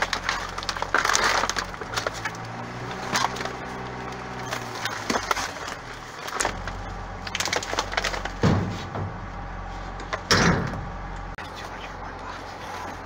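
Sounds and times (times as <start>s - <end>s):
plastic bags crinkling: 0.0s - 8.6s
steady low hum: 0.0s - 13.0s
heavy thump: 8.3s - 9.4s, 10.0s - 11.0s.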